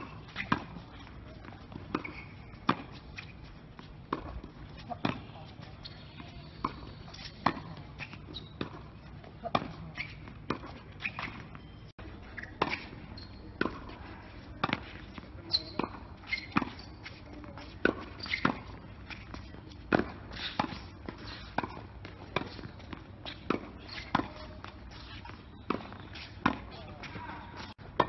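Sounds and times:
tennis ball bouncing on hard court: 0.0 - 3.3, 4.1 - 11.6, 12.4 - 13.0, 13.6 - 14.0, 14.6 - 28.0
racket hitting tennis ball: 0.0 - 11.5, 12.4 - 13.0, 13.6 - 28.0.

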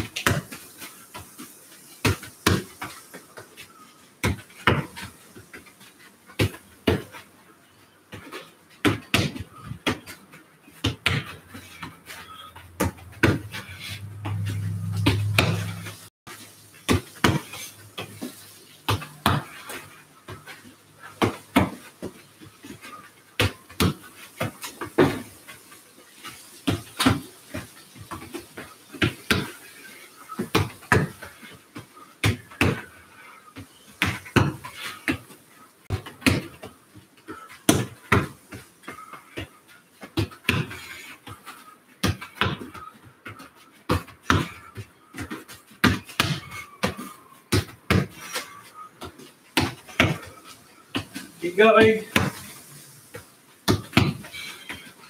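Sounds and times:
foot kicking football: 8.8 - 15.9, 37.7 - 50.3, 53.1 - 54.9
ball hitting wall: 12.8 - 15.9.

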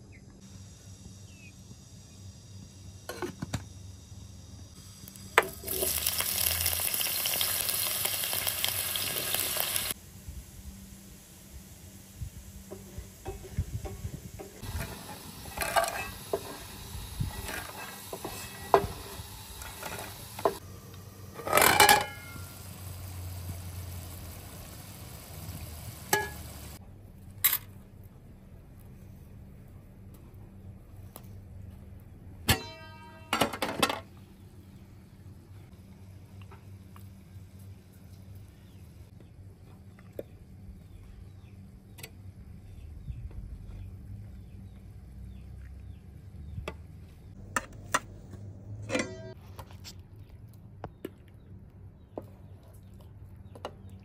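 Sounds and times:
small bird chirping: 1.2 - 2.2
pots and dishes clinking: 13.2 - 16.7, 21.4 - 22.6, 26.1 - 26.5, 48.8 - 49.4
low hum: 40.3 - 51.9.

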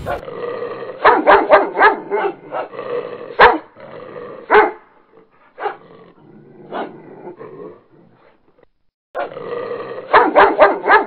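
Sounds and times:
dog barking: 1.0 - 2.7, 3.4 - 3.8, 4.5 - 4.9, 5.6 - 5.8, 6.7 - 7.0, 9.2 - 9.4, 10.1 - 11.0.

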